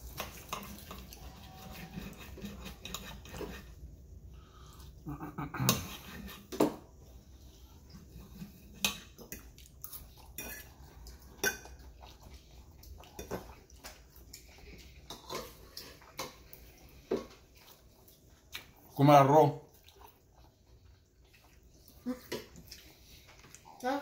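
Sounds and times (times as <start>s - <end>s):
cutlery scraping on plate: 0.2s - 3.8s, 5.5s - 6.8s, 8.1s - 9.5s, 10.3s - 12.0s, 14.4s - 16.5s.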